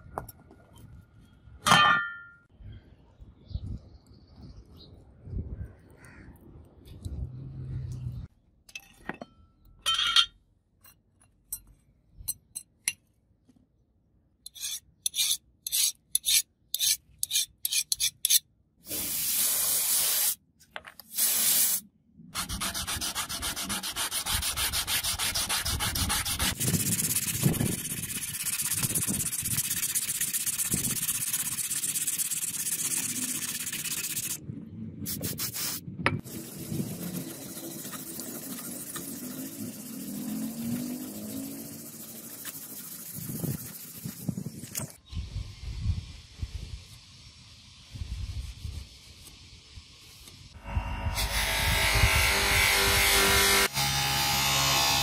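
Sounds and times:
abrasive paper rubbing steel blade: 0:14.5 - 0:18.4, 0:22.4 - 0:34.4, 0:36.2 - 0:44.3.

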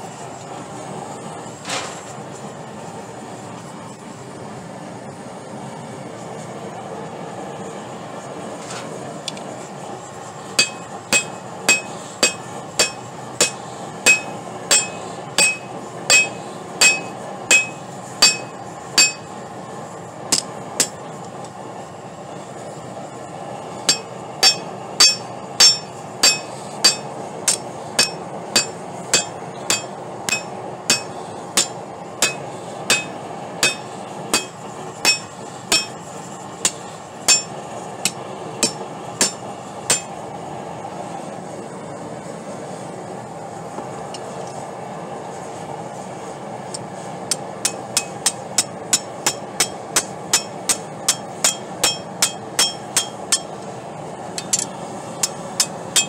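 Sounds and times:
hammer blows on anvil: 0:10.6 - 0:19.3, 0:23.9 - 0:36.0, 0:36.6 - 0:40.2, 0:47.6 - 0:53.6, 0:54.4 - 0:56.0.

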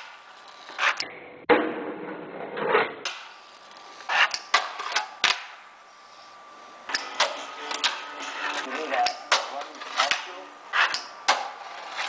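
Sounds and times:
small wheels rolling on wood: 0:00.0 - 0:01.0, 0:03.1 - 0:05.4, 0:06.9 - 0:12.0
fingerboard deck clacks: 0:06.9 - 0:11.6.

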